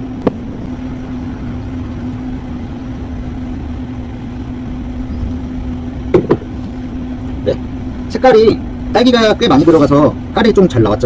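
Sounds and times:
constant background noise: 0.0s - 11.0s
steady machine hum: 0.0s - 11.0s.

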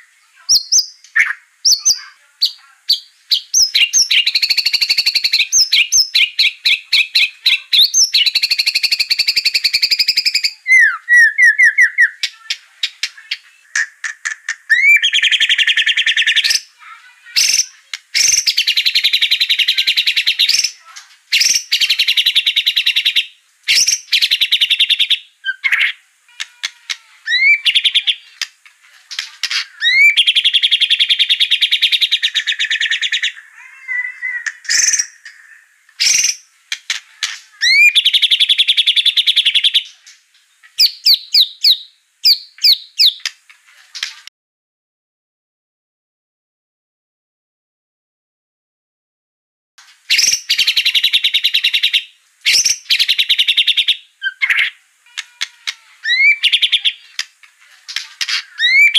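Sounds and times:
sharp bird clicks: 12.8s - 16.6s.

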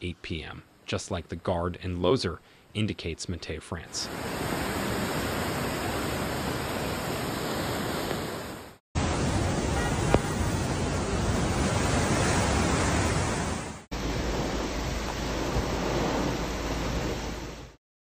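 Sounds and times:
floodwater rushing: 4.0s - 17.8s.

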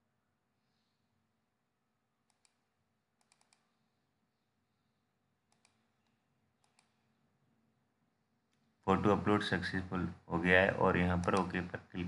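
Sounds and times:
computer mouse clicks: 2.2s - 3.8s, 5.5s - 7.1s, 11.2s - 11.6s.

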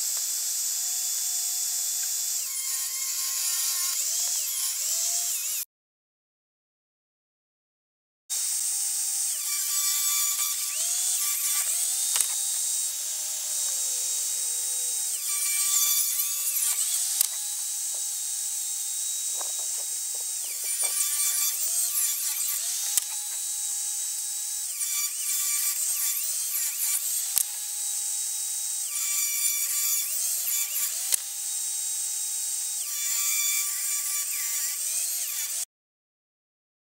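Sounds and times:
table saw ripping boards: 9.3s - 27.7s.

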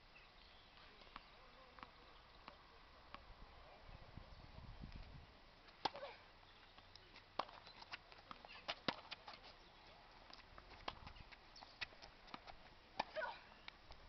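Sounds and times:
tennis ball hits and bounces: 8.3s - 9.4s.

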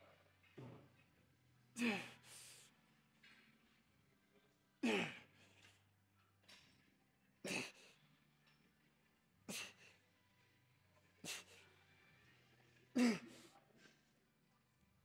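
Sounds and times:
man grunting: 1.8s - 2.3s, 4.8s - 5.2s, 13.0s - 13.4s.

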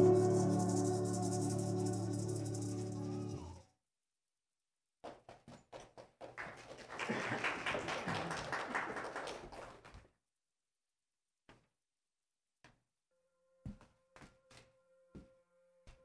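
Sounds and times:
choir and piano chord: 0.0s - 3.6s.

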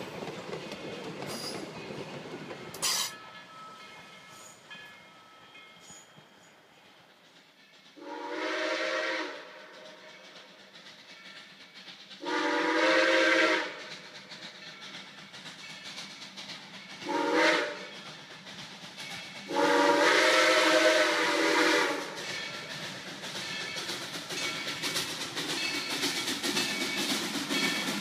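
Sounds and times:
steam locomotive whistle blasts: 8.0s - 10.0s, 12.2s - 13.9s, 17.0s - 18.0s, 19.5s - 22.4s.

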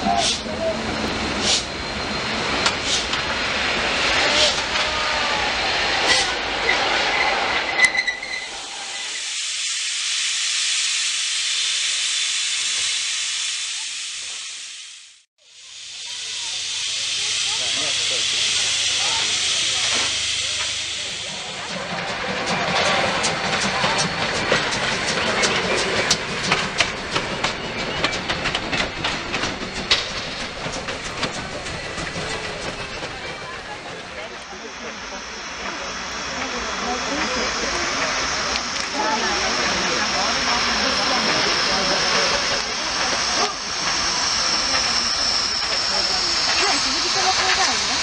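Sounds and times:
steam locomotive hissing steam: 0.0s - 48.0s
wheels clicking on track: 16.2s - 48.0s.

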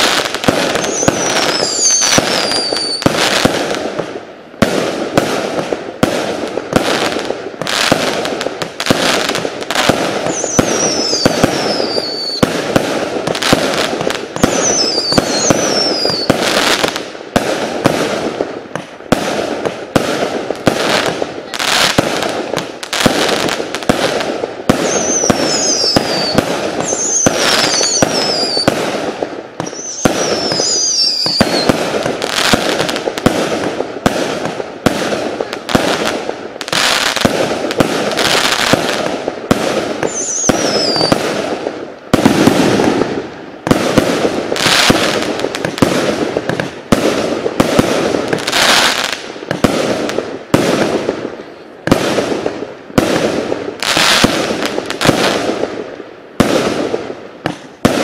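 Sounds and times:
falling fireworks whistles: 0.0s - 3.7s, 6.7s - 17.0s, 24.6s - 52.2s, 53.0s - 55.7s
fireworks crackling: 0.0s - 58.0s
fireworks shots and bursts: 0.0s - 58.0s.

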